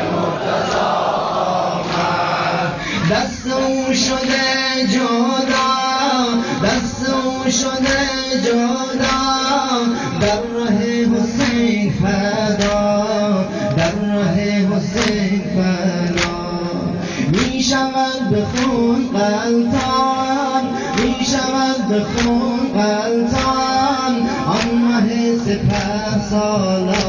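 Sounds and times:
person singing a mourning chant: 0.0s - 27.0s.

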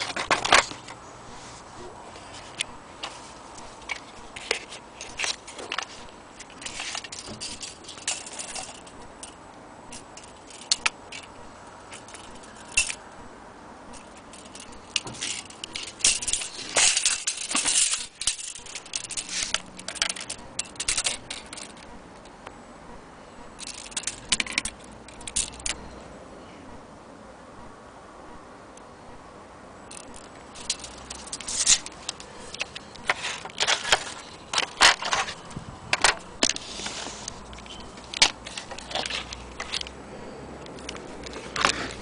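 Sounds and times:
tape measure metallic clicks: 2.5s - 13.1s, 13.9s - 22.4s, 23.6s - 25.8s, 29.9s - 40.0s, 40.6s - 42.0s.

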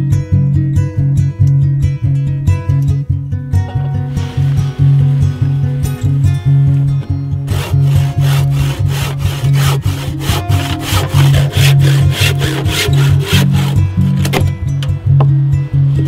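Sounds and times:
background music: 0.0s - 16.0s
hand saw cutting wood: 7.4s - 14.4s.

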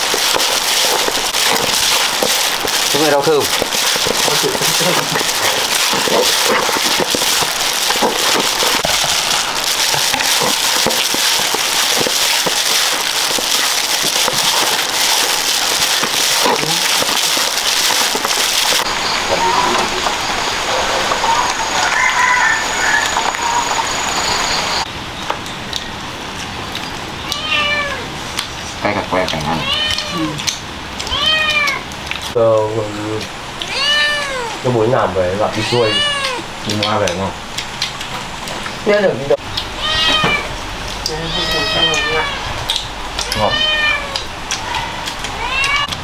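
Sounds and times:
hot oil sizzling and spattering: 0.0s - 24.9s.

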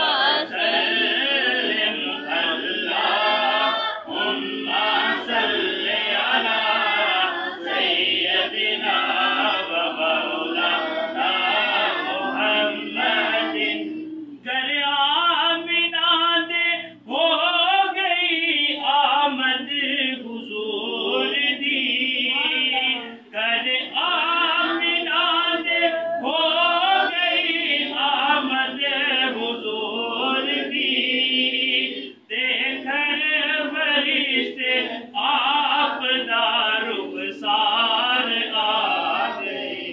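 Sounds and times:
group of voices chanting: 0.0s - 14.4s, 33.9s - 39.9s.

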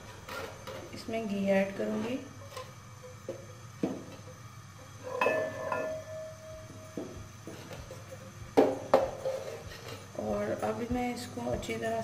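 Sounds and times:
pot ringing: 5.0s - 7.1s
spoon knocking on metal pot: 8.5s - 9.2s.

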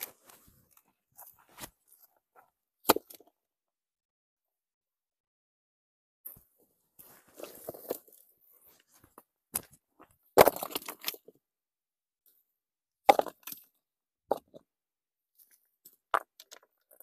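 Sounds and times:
stones knocking and scraping: 7.0s - 8.2s, 9.0s - 11.3s, 13.1s - 13.6s, 15.6s - 17.0s.

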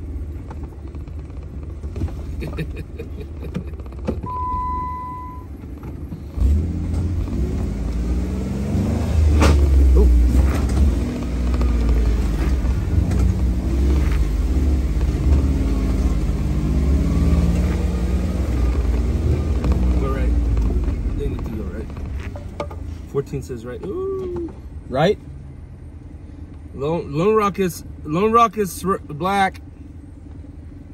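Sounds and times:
vehicle engine rumbling: 0.0s - 30.9s
electronic beep: 4.2s - 5.5s.

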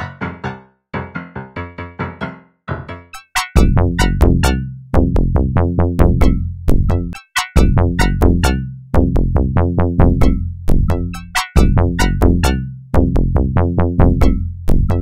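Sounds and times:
synthesizer notes: 1.8s - 4.6s, 9.6s - 12.6s
drum machine beat: 3.2s - 15.0s
deep sustained bass: 3.6s - 7.1s, 7.7s - 14.4s.

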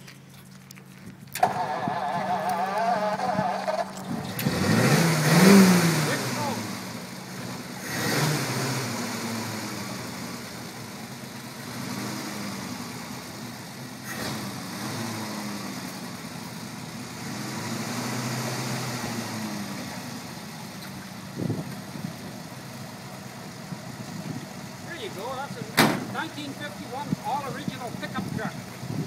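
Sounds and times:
pickup engine idling: 0.0s - 17.3s, 17.9s - 29.0s
car door opening clunk: 25.8s - 26.2s.

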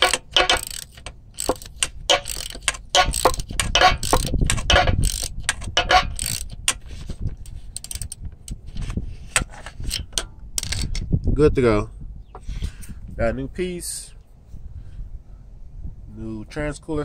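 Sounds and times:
socket ratchet clicking: 0.0s - 8.6s, 9.4s - 11.1s.

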